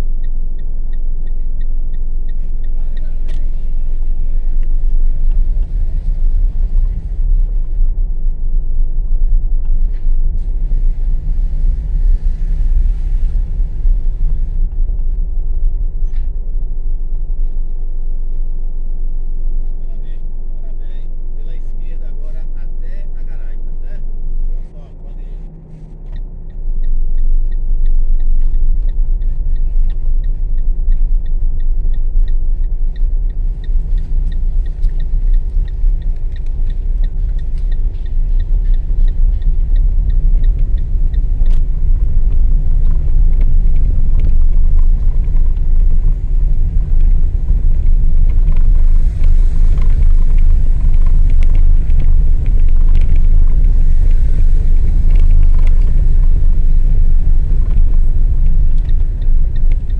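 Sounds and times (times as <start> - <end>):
tyres rumbling on cobblestones: 0.2 - 59.9
light ticking: 24.4 - 59.9.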